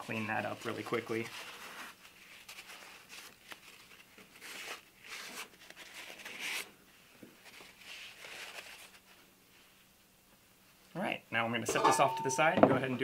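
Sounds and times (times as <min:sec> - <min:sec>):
paper towel crinkling: 0:00.0 - 0:09.9.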